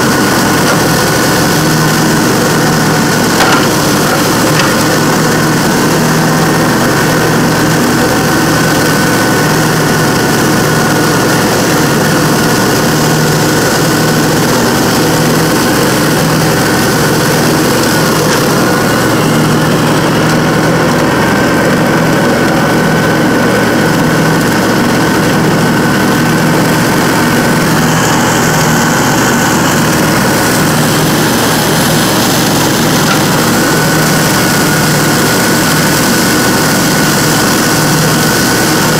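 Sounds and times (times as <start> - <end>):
riding mower engine drone: 0.0 - 38.9
steady high whine: 11.0 - 38.9.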